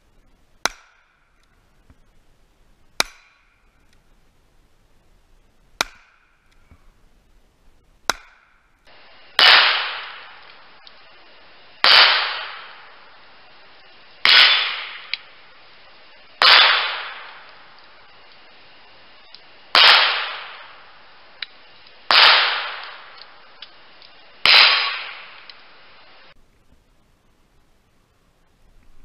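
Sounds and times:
bullets ringing on steel targets: 0.6s - 1.4s, 3.0s - 3.9s, 14.2s - 15.3s, 16.4s - 17.5s
handgun shots: 9.4s - 10.4s, 16.4s - 17.4s.

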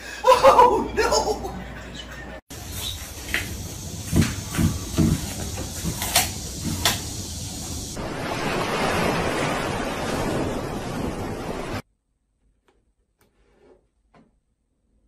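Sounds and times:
ocean surf breaking on beach: 8.0s - 11.8s.

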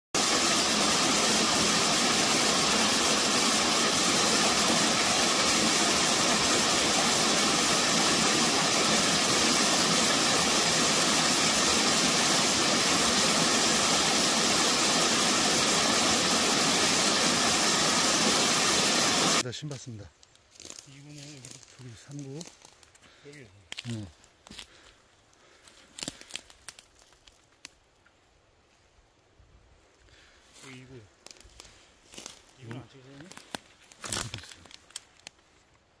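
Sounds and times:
waterfall splashing over boulders: 0.1s - 19.4s.

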